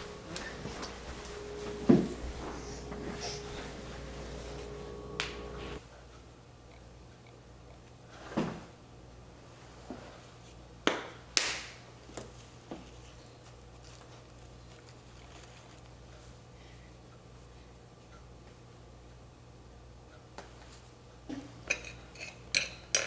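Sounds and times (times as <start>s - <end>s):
low steady hum: 0.0s - 10.8s.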